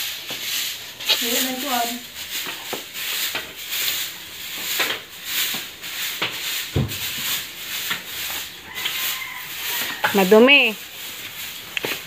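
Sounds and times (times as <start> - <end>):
scratchy rubbing strokes: 0.0 - 12.0.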